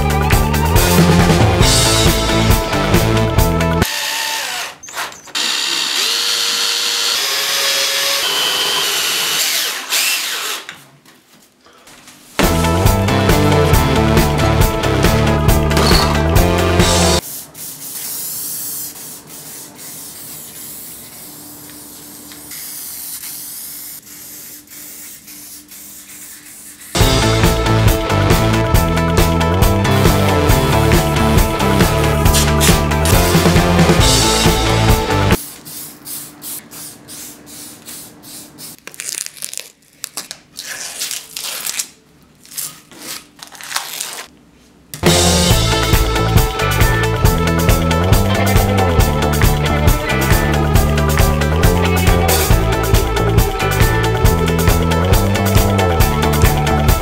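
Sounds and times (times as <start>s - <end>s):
music: 0.0s - 3.9s, 12.4s - 17.2s, 27.0s - 35.4s, 45.0s - 57.0s
spray-paint can hissing: 17.2s - 21.2s, 21.9s - 26.2s
spray paint can hissing: 22.5s - 26.2s.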